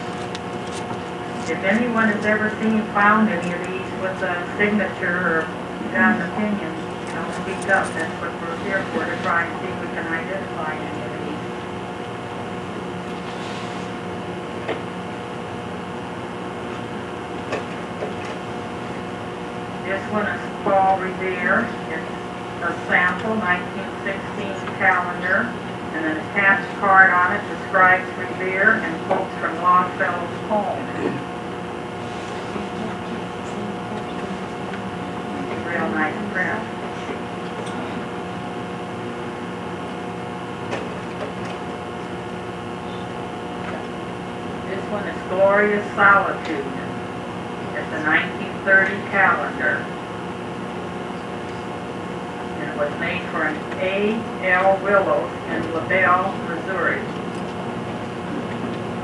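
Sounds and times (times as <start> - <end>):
machine hum with held tones: 0.0 - 59.0.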